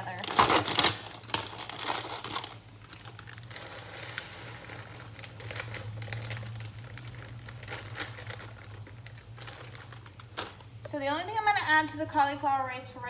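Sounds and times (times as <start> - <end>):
plastic bag crinkling: 0.0 - 10.9.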